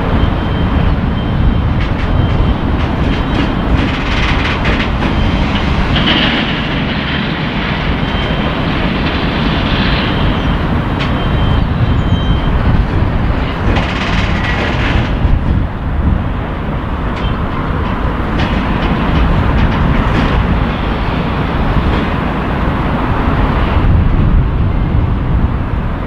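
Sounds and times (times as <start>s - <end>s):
low locomotive rumble: 0.0s - 26.0s
wheels clicking over rail joints: 0.1s - 24.4s
thin high wheel squeal: 9.8s - 12.7s.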